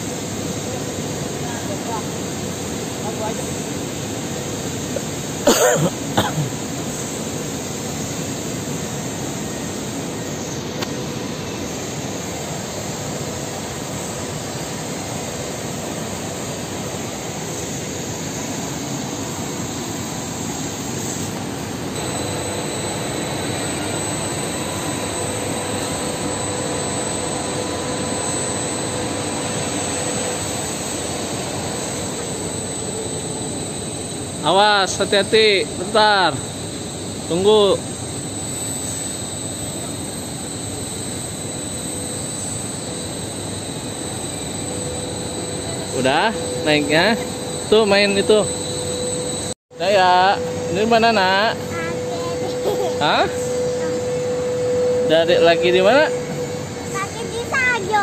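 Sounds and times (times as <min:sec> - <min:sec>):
machinery roar: 0:00.0 - 0:58.0
steady hum: 0:00.0 - 0:58.0
cough: 0:05.0 - 0:06.6.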